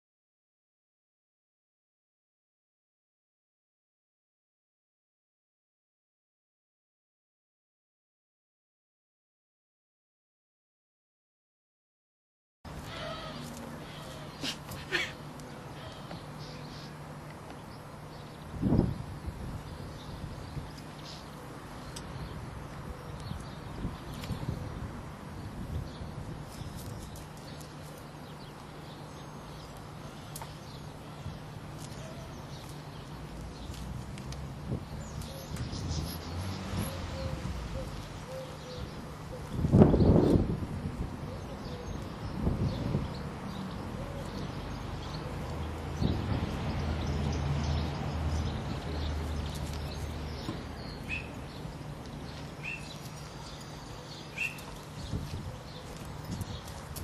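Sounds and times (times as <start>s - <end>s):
small birds chirping: 12.8s - 40.5s, 41.3s - 57.0s
small bird chirping: 49.4s - 51.5s, 52.2s - 56.8s.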